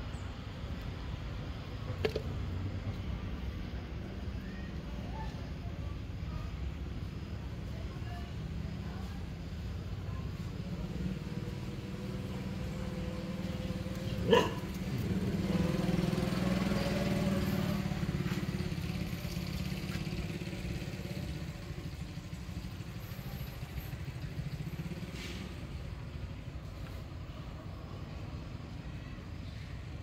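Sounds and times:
passing vehicle engine: 10.0s - 30.0s.

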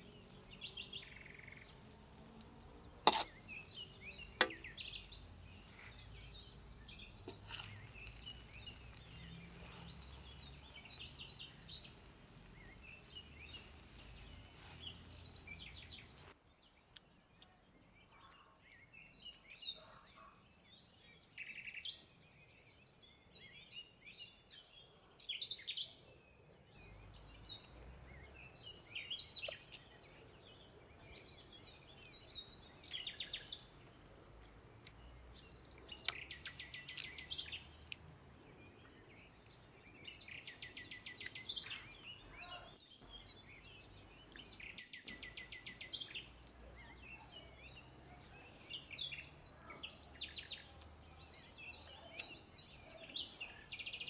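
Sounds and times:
birds chirping: 0.0s - 16.4s, 23.3s - 54.0s
metal spatula stirring in wok: 2.8s - 3.8s, 4.4s - 10.6s
spatula striking wok: 3.0s - 3.5s, 4.3s - 4.8s, 7.2s - 9.0s.

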